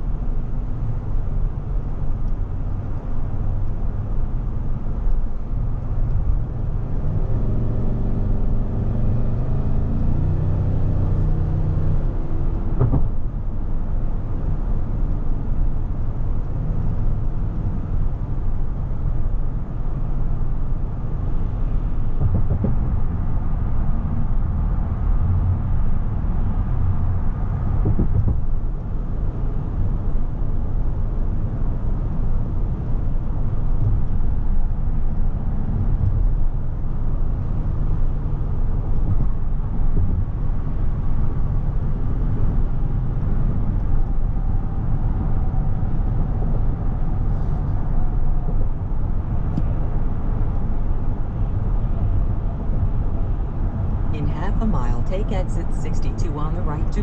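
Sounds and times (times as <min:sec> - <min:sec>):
road and tyre noise in car: 0:00.0 - 0:57.0.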